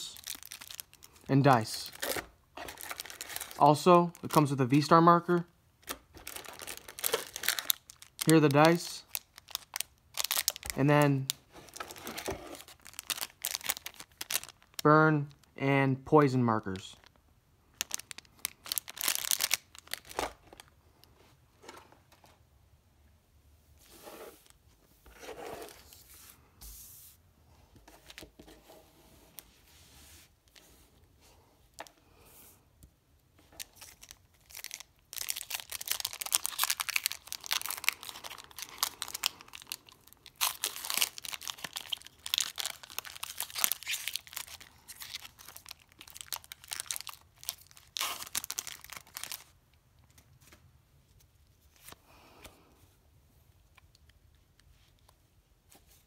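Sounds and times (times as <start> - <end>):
foil wrapper tearing and crinkling: 6.2 - 10.8, 11.8 - 14.8, 17.8 - 20.2, 33.6 - 49.5.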